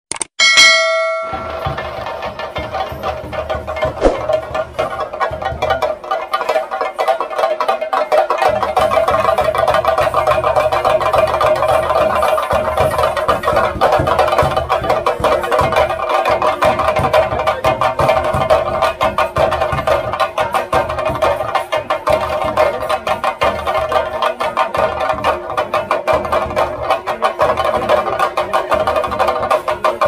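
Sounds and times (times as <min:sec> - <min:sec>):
fast drum strokes: 0:01.4 - 0:05.6.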